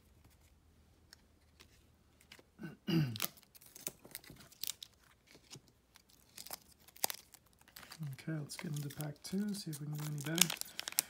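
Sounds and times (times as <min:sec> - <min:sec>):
cards crinkling and ticking: 0:00.1 - 0:02.5, 0:03.1 - 0:11.0
card wrapper rustling: 0:03.2 - 0:11.0.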